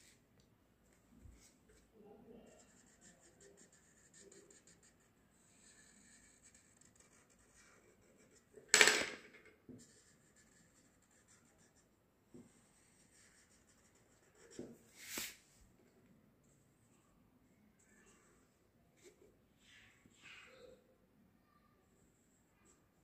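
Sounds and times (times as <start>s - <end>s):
marker pen scratching on paper: 2.5s - 8.6s, 9.7s - 15.4s.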